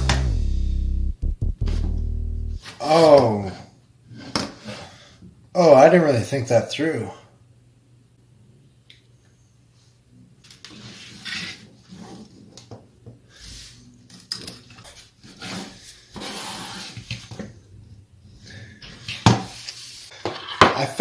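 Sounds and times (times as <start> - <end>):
sharp knock: 1.2 - 2.2.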